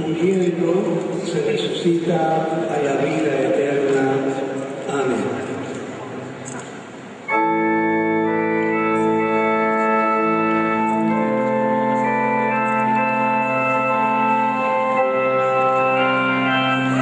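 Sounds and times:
organ playing slow chords: 0:07.2 - 0:17.0.

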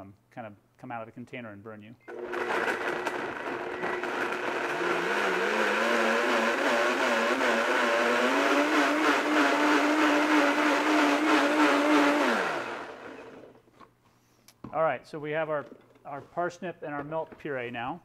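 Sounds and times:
blender motor running: 0:02.1 - 0:13.6.

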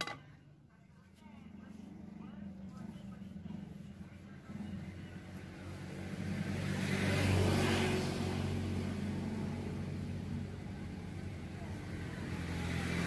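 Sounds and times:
vehicle passing by: 0:03.1 - 0:13.0.

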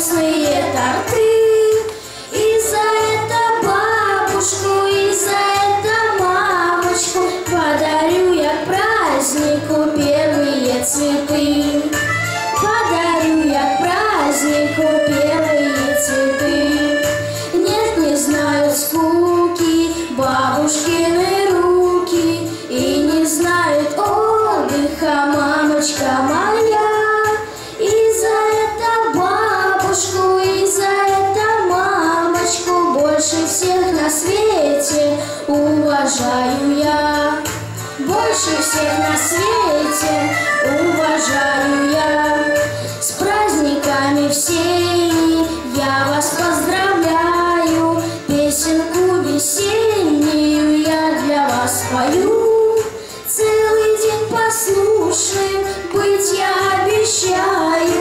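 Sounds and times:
backing track with steady beat: 0:00.0 - 0:58.0
boy singing into a microphone: 0:00.0 - 0:58.0.

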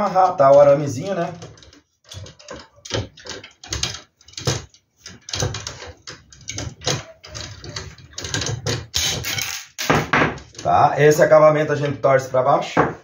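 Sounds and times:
pliers twisting wire: 0:00.4 - 0:09.9.

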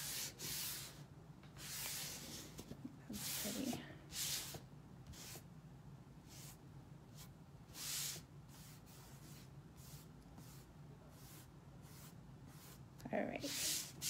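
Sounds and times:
hand rubbing stencil swishes: 0:00.0 - 0:01.0, 0:01.6 - 0:05.4, 0:06.3 - 0:14.0.

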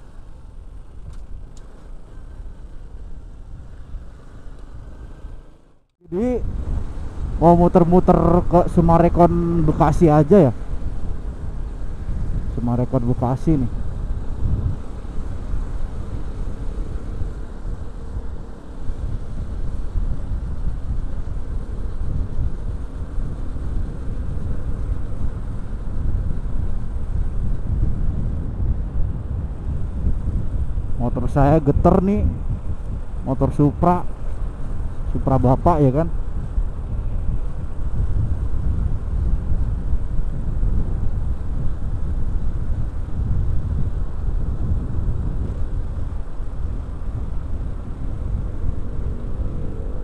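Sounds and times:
road noise: 0:00.0 - 0:50.0
wind buffeting microphone: 0:00.0 - 0:50.0
small motorcycle engine running: 0:13.2 - 0:31.0, 0:35.9 - 0:50.0.

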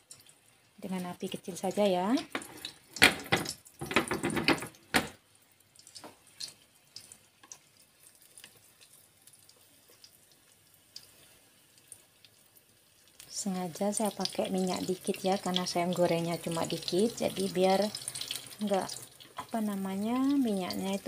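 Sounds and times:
food frying in oil: 0:00.0 - 0:21.0
small pops of oil: 0:05.8 - 0:07.6.

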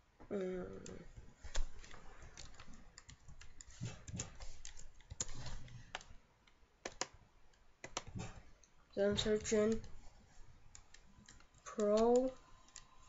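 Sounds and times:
keyboard typing: 0:00.7 - 0:06.2, 0:06.8 - 0:08.4, 0:09.0 - 0:10.0, 0:10.7 - 0:13.0.

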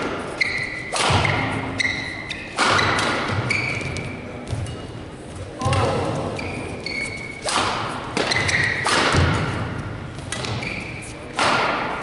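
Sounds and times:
rackets striking shuttlecock: 0:00.0 - 0:04.8, 0:07.4 - 0:12.0
shoe squeaks on court: 0:00.4 - 0:04.9, 0:06.2 - 0:07.5, 0:08.2 - 0:08.9, 0:10.3 - 0:11.4.

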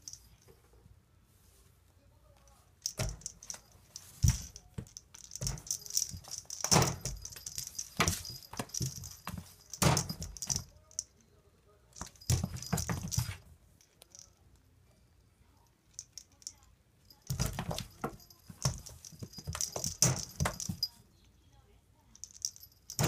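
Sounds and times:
metallic rattling and jingling: 0:02.8 - 0:11.1, 0:12.0 - 0:14.4, 0:16.0 - 0:21.0, 0:22.2 - 0:23.0.

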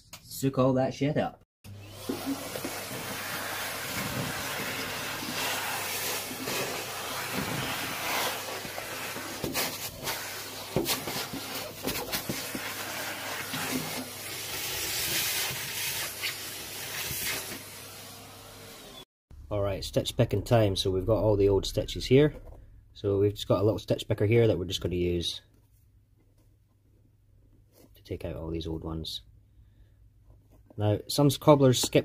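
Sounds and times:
vacuum cleaner running: 0:01.7 - 0:19.0.

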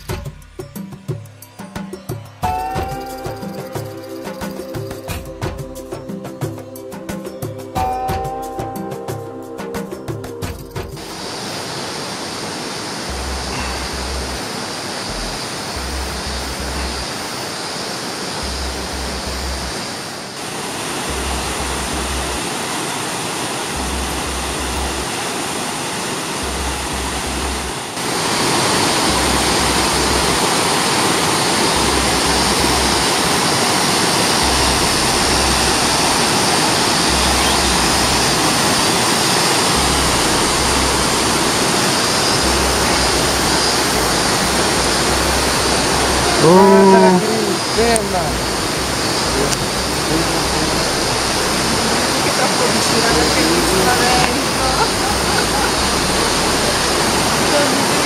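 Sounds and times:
river rushing over rapids: 0:11.0 - 0:58.0
low repeating pulse: 0:13.1 - 0:17.1, 0:18.4 - 0:19.8, 0:21.0 - 0:22.5, 0:23.7 - 0:25.1, 0:26.4 - 0:28.0, 0:29.0 - 0:39.0, 0:39.7 - 0:58.0.

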